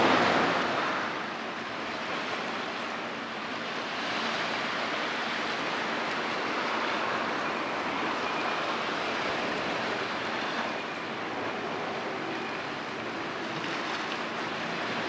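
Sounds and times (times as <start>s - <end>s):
sea waves rushing: 0.0s - 15.0s
wind: 0.0s - 15.0s.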